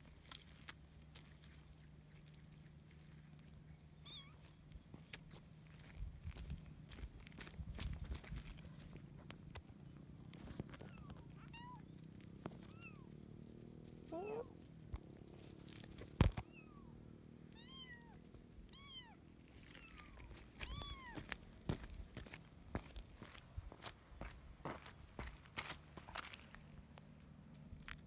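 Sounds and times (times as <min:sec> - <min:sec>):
kitten meowing: 0:10.9 - 0:11.8, 0:17.5 - 0:19.2, 0:19.8 - 0:21.2.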